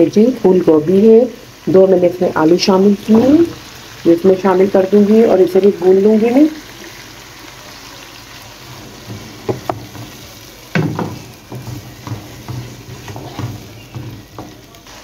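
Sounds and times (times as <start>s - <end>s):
oil sizzling in a wok: 0.0s - 15.0s
wooden spoon scraping and knocking: 8.7s - 14.9s.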